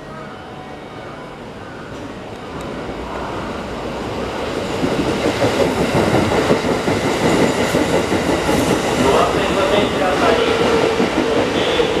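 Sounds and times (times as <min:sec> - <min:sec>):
train wheels clattering: 0:04.6 - 0:12.0.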